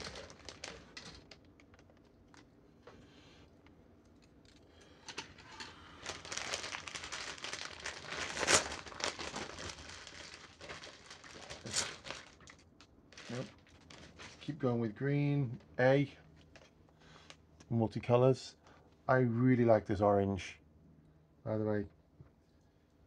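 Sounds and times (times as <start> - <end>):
plastic bags crinkling: 0.0 - 2.5, 4.4 - 14.6.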